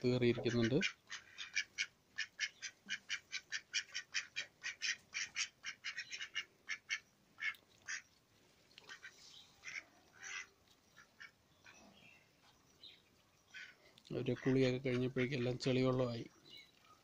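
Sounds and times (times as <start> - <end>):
ducks quacking: 0.0 - 8.1, 8.8 - 11.8, 13.5 - 15.8.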